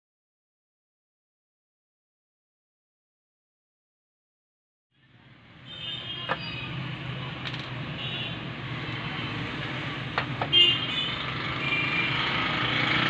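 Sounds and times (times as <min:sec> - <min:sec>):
clicks of parts being handled: 0:07.4 - 0:07.8.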